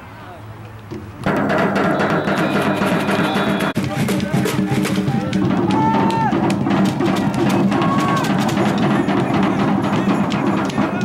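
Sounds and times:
drum-led music: 1.1s - 11.0s
short high held calls: 1.8s - 3.8s.

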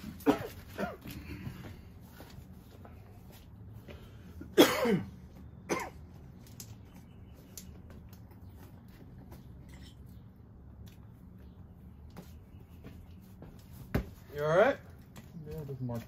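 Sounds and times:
person coughing: 0.2s - 1.4s, 4.5s - 6.0s.

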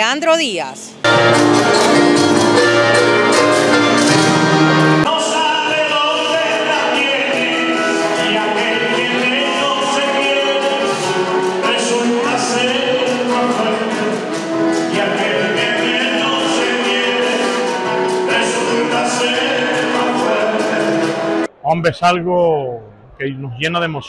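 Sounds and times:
instrumental accompaniment: 1.0s - 21.5s
acoustic guitar music: 1.0s - 21.6s
man singing into a microphone: 5.1s - 21.4s.

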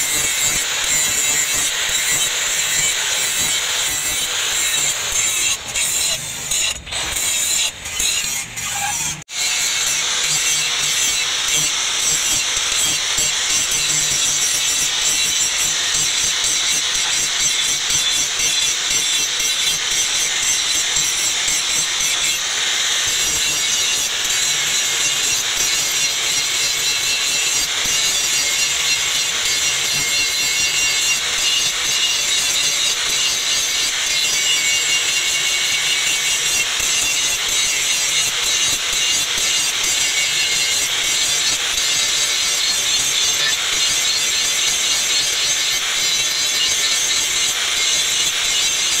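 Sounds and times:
angle grinder grinding metal: 0.0s - 49.0s.

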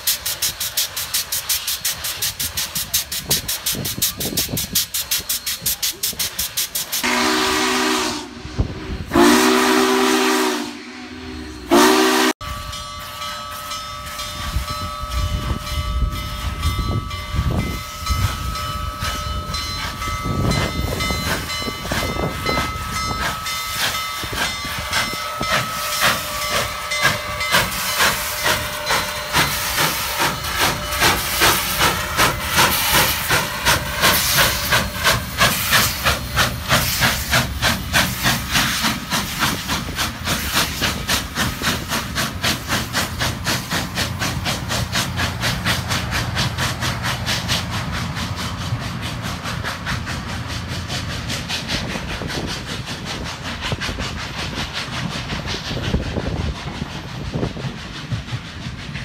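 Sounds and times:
steam locomotive whistle: 0.0s - 39.6s
loud steam hiss: 0.0s - 59.0s
steam locomotive chuffing: 0.0s - 59.0s.

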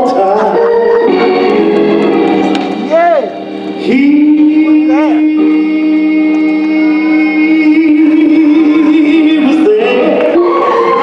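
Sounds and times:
organ chords: 0.0s - 11.0s
man singing held note: 2.9s - 11.0s.

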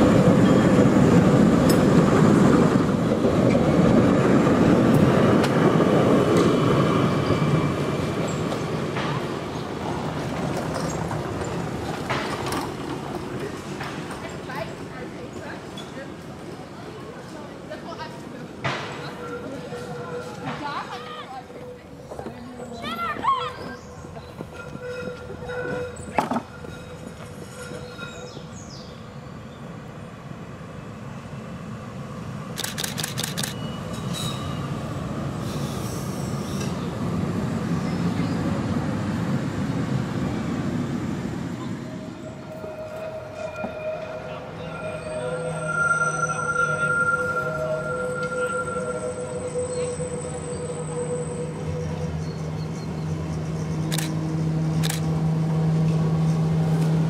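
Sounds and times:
tram rumbling past: 0.0s - 57.0s
high wheel squeals: 22.8s - 28.4s, 42.0s - 53.9s.

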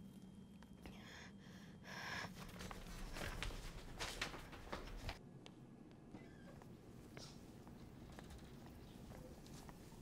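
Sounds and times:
hurried footsteps and shuffling: 2.4s - 5.2s.

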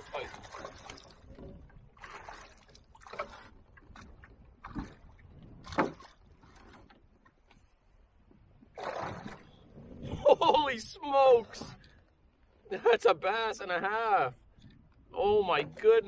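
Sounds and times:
knocks in a canoe: 5.6s - 7.0s.

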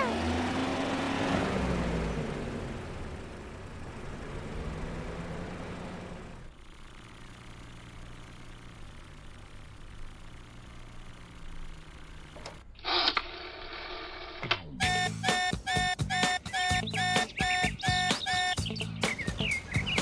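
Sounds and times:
cartoon car revving away: 0.0s - 10.1s, 14.8s - 20.0s
low engine hum: 0.0s - 12.7s, 15.8s - 20.0s.

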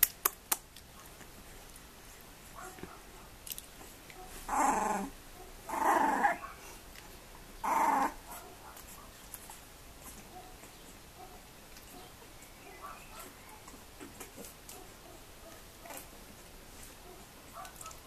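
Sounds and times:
puppy growling: 4.5s - 6.6s, 7.6s - 8.4s, 13.6s - 14.8s, 15.7s - 16.4s.

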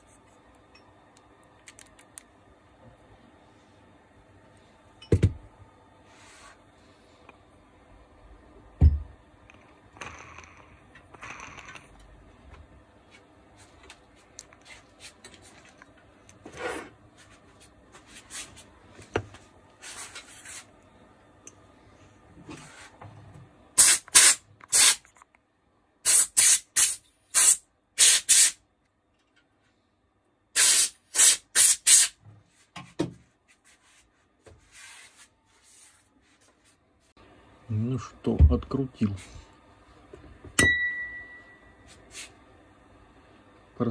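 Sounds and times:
aerosol spray can bursts: 23.8s - 25.0s, 26.1s - 28.6s, 30.6s - 32.2s.

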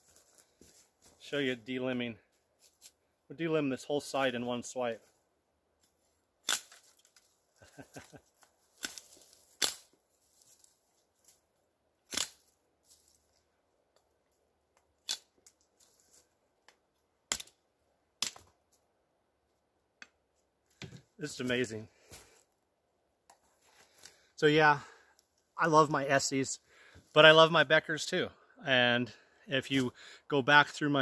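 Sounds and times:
dry branches snapping: 6.4s - 7.4s, 8.4s - 11.4s, 12.0s - 13.2s, 14.9s - 17.6s, 18.2s - 18.6s
knife striking wood: 18.2s - 18.5s.

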